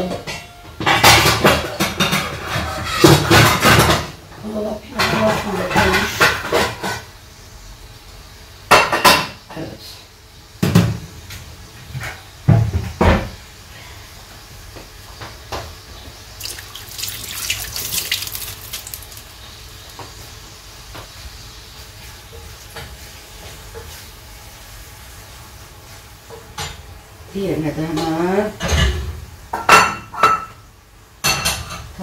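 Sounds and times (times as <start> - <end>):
water running from tap: 16.4 - 20.2.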